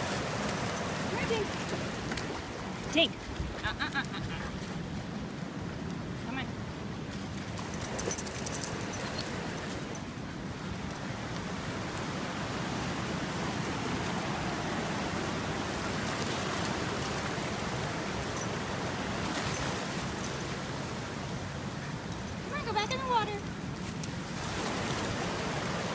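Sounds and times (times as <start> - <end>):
creek rushing: 0.0 - 3.3, 11.5 - 25.9.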